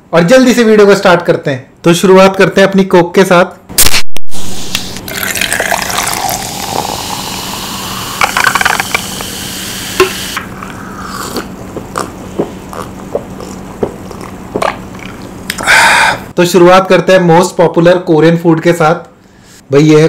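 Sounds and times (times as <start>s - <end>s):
soda fizzing as poured: 5.0s - 10.4s.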